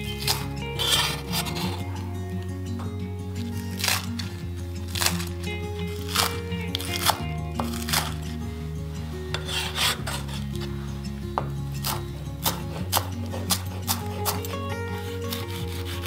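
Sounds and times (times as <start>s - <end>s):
knife scraping board: 0.1s - 1.9s, 6.0s - 8.2s, 9.3s - 10.7s, 11.8s - 16.0s
knife chopping on wooden board: 6.0s - 8.2s, 11.4s - 14.6s.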